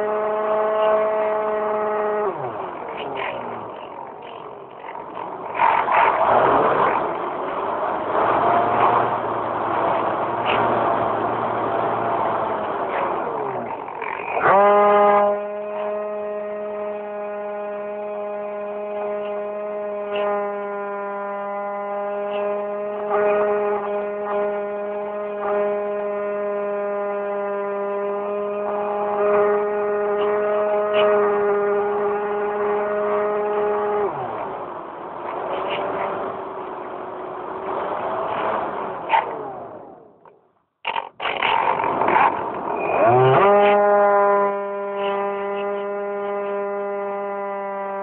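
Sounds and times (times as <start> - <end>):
model plane motor and propeller: 0.0 - 48.0.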